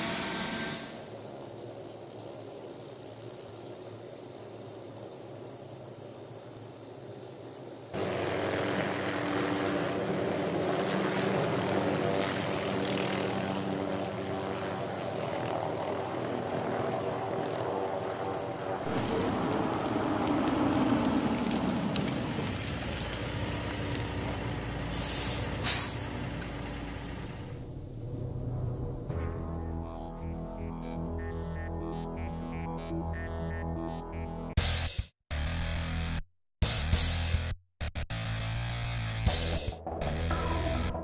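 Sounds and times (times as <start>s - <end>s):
air brake hiss: 0.0s - 1.1s, 24.9s - 26.2s
truck diesel engine running: 18.8s - 29.8s.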